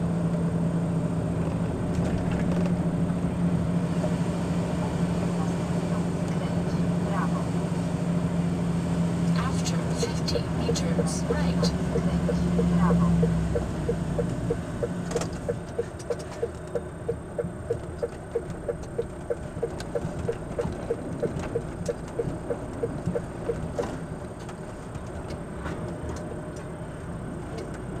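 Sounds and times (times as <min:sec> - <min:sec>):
low engine and road rumble: 0:00.0 - 0:28.0
turn signal ticking: 0:09.3 - 0:24.0.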